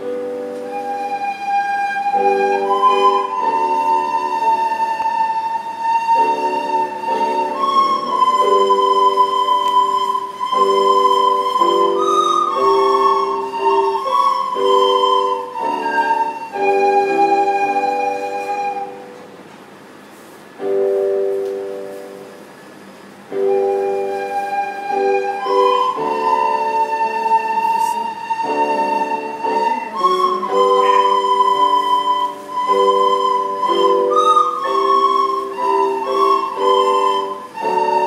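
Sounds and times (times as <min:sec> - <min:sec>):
children playing soprano recorders: 0:00.0 - 0:19.3, 0:23.3 - 0:38.0
chord accompaniment: 0:00.0 - 0:19.4.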